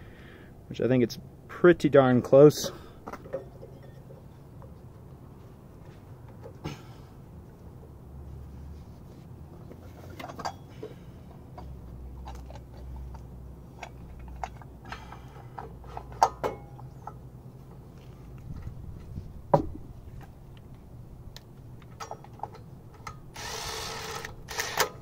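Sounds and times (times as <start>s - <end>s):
metallic clicks and knocks: 13.8s - 17.3s, 21.4s - 23.3s.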